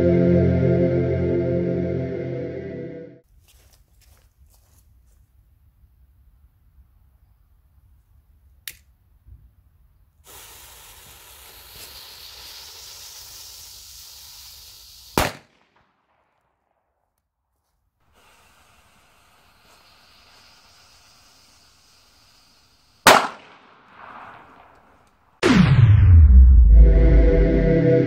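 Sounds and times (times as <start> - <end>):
faint steady hiss: 9.8 - 15.4, 18.1 - 25.2
fuse hissing: 10.2 - 15.3, 18.1 - 23.2
firecracker bang: 15.2 - 15.6, 23.0 - 24.8, 25.4 - 27.2.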